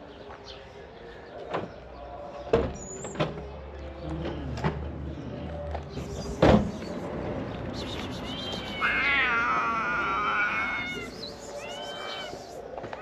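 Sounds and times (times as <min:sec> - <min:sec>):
kittens mewing faintly: 0:08.2 - 0:12.6.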